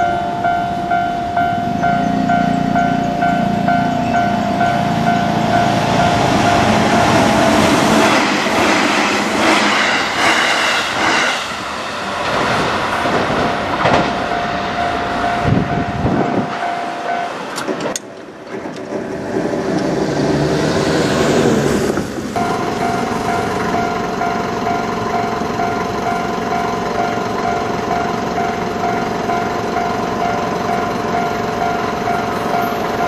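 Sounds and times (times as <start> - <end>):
crossing warning bell ringing: 0.0 - 10.3, 13.4 - 18.0, 22.4 - 33.0
train wheels clacking on rail joints: 12.2 - 20.4.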